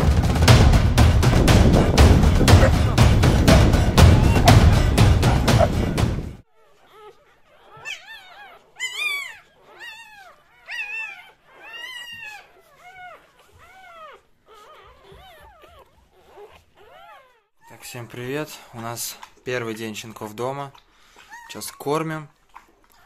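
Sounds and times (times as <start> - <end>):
intro music: 0.0 - 6.4
puppies squealing and whimpering: 4.1 - 4.6, 6.6 - 18.0, 20.6 - 23.0.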